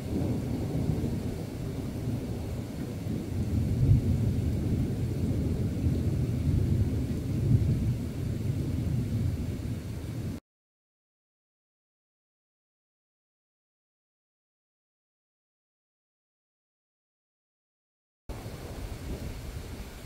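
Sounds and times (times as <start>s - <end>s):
thunder rumbling: 0.0s - 10.4s, 18.3s - 20.0s.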